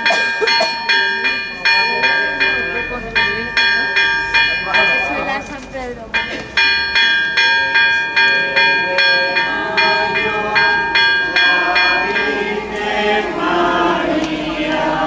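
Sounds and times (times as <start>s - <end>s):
church bell ringing rapidly: 0.0s - 15.0s
crowd singing together: 7.5s - 15.0s.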